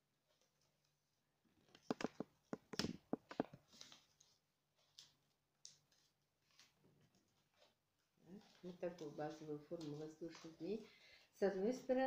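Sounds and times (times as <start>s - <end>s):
paper folding taps and clicks: 1.8s - 6.7s
paper rustling: 1.8s - 11.0s.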